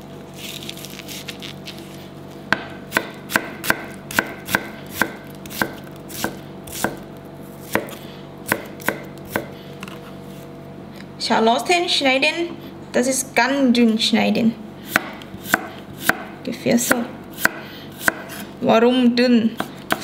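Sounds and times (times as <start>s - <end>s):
knife chopping on cutting board: 2.5s - 9.6s, 14.9s - 16.3s, 16.9s - 18.4s, 19.6s - 20.0s.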